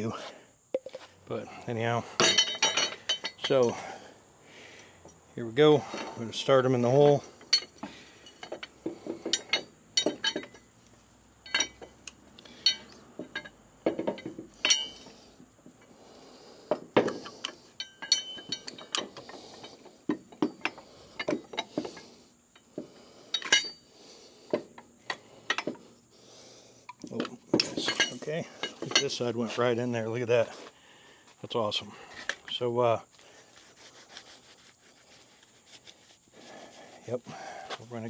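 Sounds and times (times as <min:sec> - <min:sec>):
metal clinks and knocks: 0:00.7 - 0:01.1, 0:01.8 - 0:04.0, 0:05.0 - 0:10.8, 0:11.4 - 0:16.0, 0:16.6 - 0:26.1, 0:26.8 - 0:30.6.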